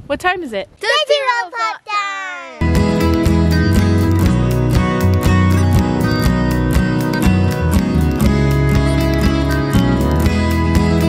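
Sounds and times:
strummed acoustic guitar: 0:02.6 - 0:11.0.

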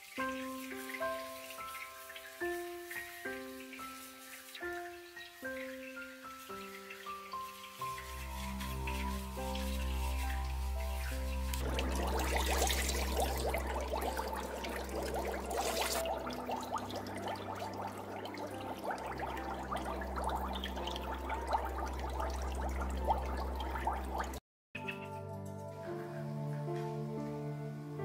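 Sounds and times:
water being poured: 0:00.0 - 0:24.4
water splashing in plastic tub: 0:07.7 - 0:24.4.

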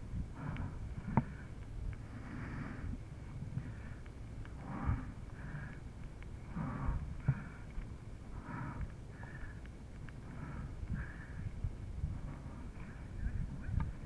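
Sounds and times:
low rumble: 0:00.0 - 0:14.0
person breathing hard: 0:00.1 - 0:13.7
light clicks: 0:02.8 - 0:14.0.

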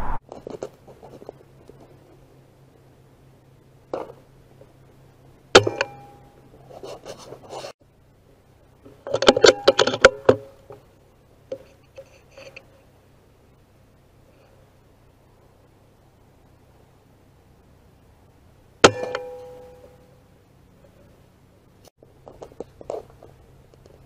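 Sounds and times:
rustling: 0:06.1 - 0:07.8.

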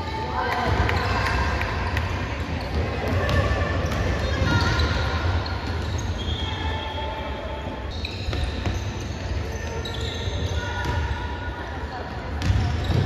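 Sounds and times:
sneakers squeaking on court: 0:02.4 - 0:11.3, 0:12.3 - 0:13.0.

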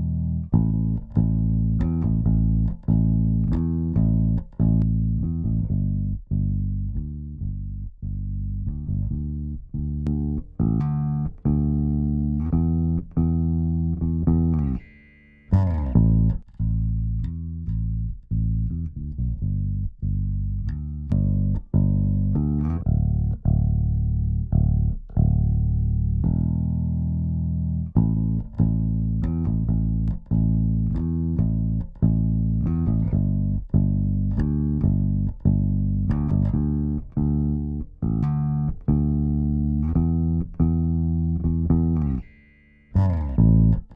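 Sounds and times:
plucked bass guitar: 0:00.0 - 0:43.9.

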